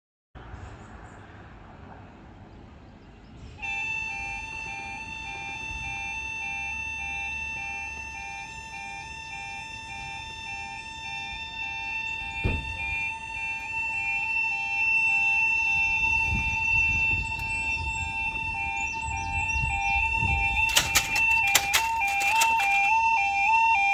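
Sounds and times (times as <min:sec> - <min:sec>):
steady electronic alarm tone: 0:03.6 - 0:23.9
two-pitch alternating alarm: 0:03.6 - 0:23.9
thump: 0:12.4 - 0:12.8.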